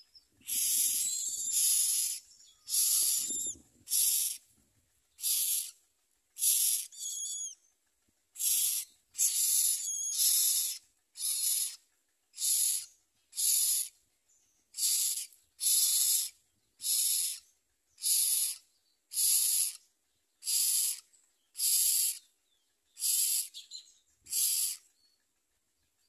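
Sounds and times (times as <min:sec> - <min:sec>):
nestlings hissing begging calls: 0:00.4 - 0:04.4, 0:05.2 - 0:05.8, 0:06.4 - 0:07.6, 0:08.4 - 0:11.8, 0:12.4 - 0:13.9, 0:14.7 - 0:19.8, 0:20.4 - 0:22.2, 0:23.0 - 0:23.6, 0:24.3 - 0:24.8.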